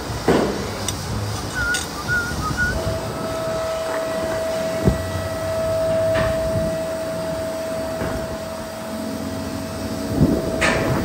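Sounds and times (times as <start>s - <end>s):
machine hum: 0.0s - 11.0s
hand tools clicking: 0.8s - 2.7s.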